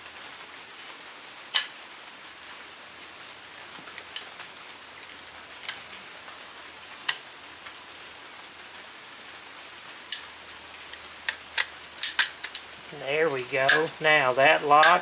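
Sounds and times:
steady hiss: 0.0s - 15.0s
gun parts clicking metallically: 11.2s - 12.7s, 13.6s - 14.1s, 14.7s - 15.0s.

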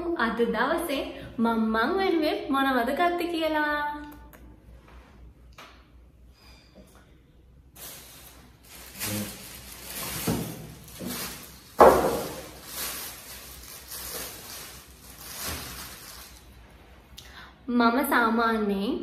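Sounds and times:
plastic bag rustling: 7.7s - 16.9s.

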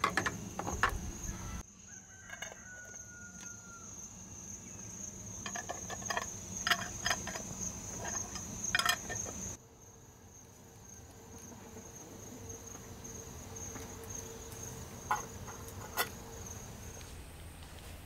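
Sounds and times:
sharp clicks and knocks: 0.0s - 1.1s, 5.4s - 9.6s
crickets trilling: 0.0s - 17.5s
background noise: 0.0s - 18.0s.

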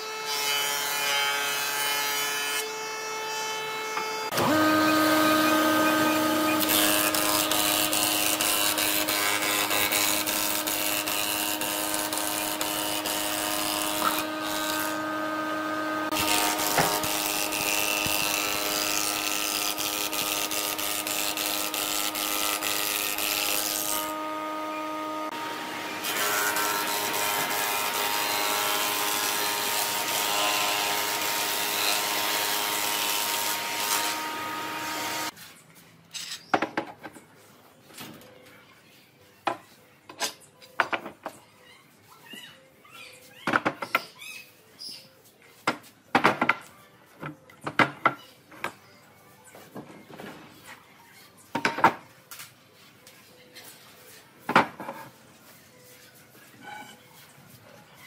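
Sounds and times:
electric power tool whining: 4.3s - 30.2s.

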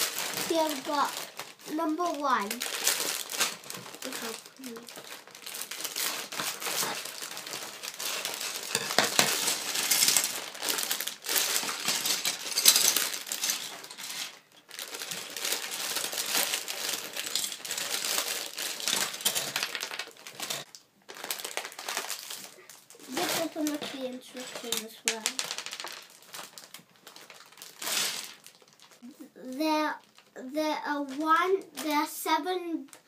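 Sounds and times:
plastic bag crinkling: 0.0s - 32.2s
plastic bricks clattering on table: 5.9s - 20.7s, 23.1s - 26.6s, 27.8s - 28.4s.

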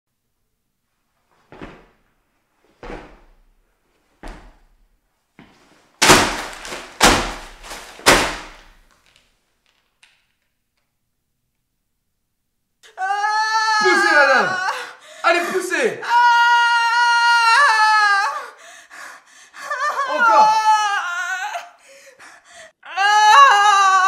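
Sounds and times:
stomps on tiled floor: 1.5s - 2.0s, 2.8s - 3.5s, 4.2s - 4.8s, 5.4s - 9.0s
paper crushed underfoot: 6.0s - 9.2s.

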